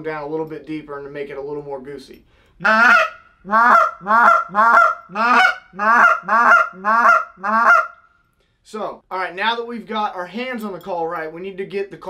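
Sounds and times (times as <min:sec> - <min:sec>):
goose call honks: 0:02.6 - 0:08.0.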